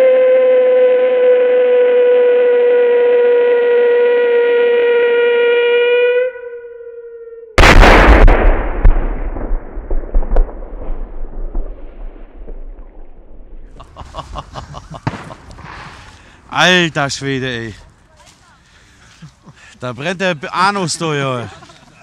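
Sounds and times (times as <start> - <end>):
firework whistle: 0.0 - 7.6
loud firework bang: 7.6 - 13.8, 15.0 - 16.0.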